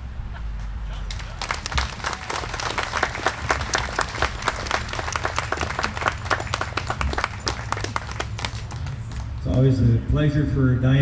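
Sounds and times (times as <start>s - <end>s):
audience applauding: 1.0s - 9.6s.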